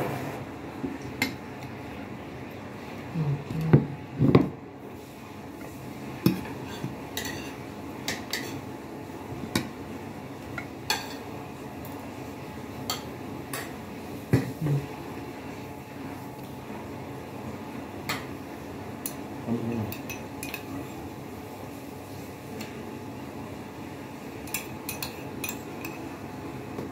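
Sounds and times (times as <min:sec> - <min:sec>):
fork clinking against plates: 0:19.8 - 0:20.7, 0:24.4 - 0:26.0.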